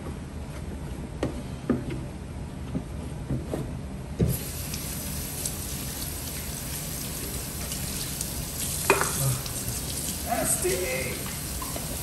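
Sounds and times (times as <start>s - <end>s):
faucet water running into steel sink: 4.3s - 12.0s.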